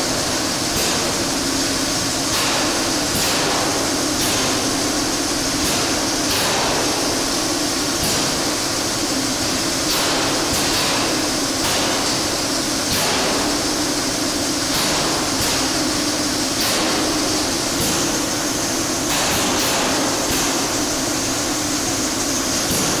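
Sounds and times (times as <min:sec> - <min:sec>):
pump mechanical hum: 0:00.0 - 0:23.0
short air hisses: 0:00.0 - 0:23.0.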